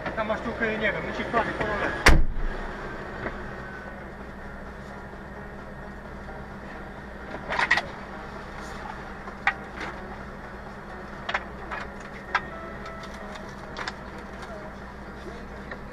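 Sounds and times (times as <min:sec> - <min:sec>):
idling fire engine hum: 0:00.0 - 0:15.9.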